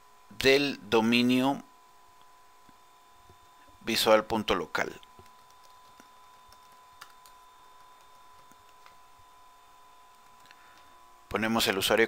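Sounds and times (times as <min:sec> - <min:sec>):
faint steady tone: 0:00.0 - 0:12.0
keyboard keystrokes: 0:05.2 - 0:09.0.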